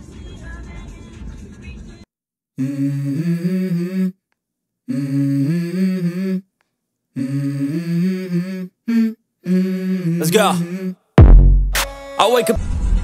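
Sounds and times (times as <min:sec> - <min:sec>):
person humming a tune: 0:02.6 - 0:04.2, 0:04.9 - 0:06.5, 0:07.2 - 0:11.1.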